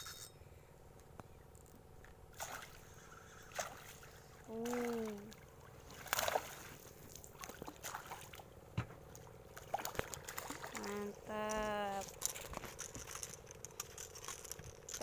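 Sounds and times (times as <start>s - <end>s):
fish splashing at water surface: 2.4s - 8.5s, 9.1s - 11.0s
person calling out wordlessly: 10.8s - 12.1s.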